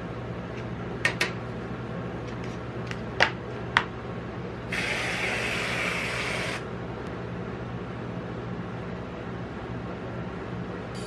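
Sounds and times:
aerosol whipped cream spraying: 4.7 - 6.6.

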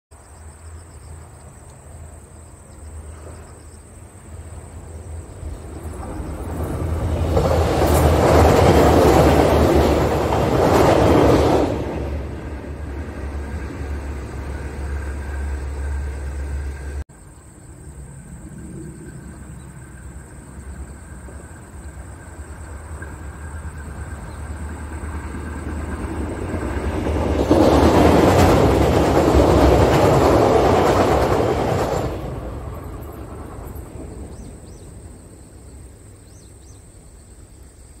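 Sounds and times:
train wheels rumbling on rails: 2.9 - 17.0, 18.5 - 36.2
diesel engine drone: 12.6 - 17.1.

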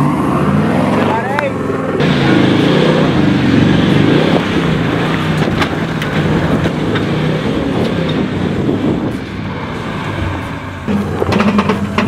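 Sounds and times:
diesel engine working under load: 0.0 - 12.0
tyres scrabbling over loose dirt: 4.8 - 9.3, 10.8 - 12.0.

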